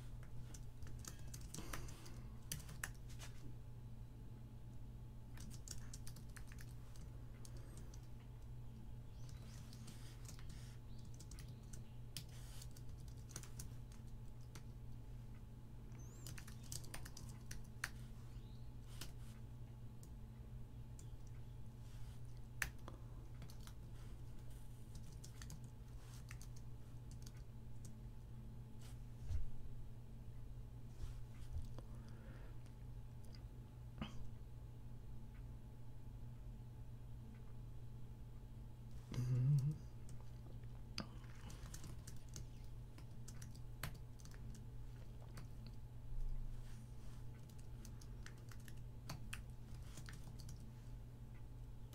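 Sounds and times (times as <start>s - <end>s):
steady low hum: 0.0s - 51.9s
low voice murmur: 39.1s - 39.9s.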